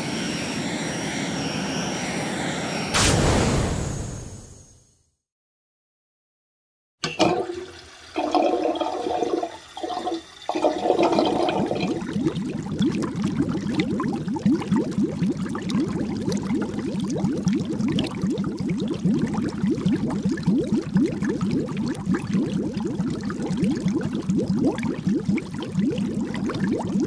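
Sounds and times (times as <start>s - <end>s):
water boiling in a pot: 7.2s - 27.0s.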